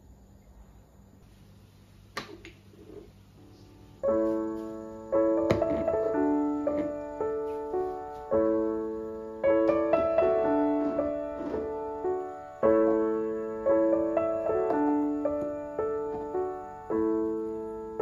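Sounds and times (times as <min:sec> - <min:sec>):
soft piano music: 0:03.3 - 0:18.0.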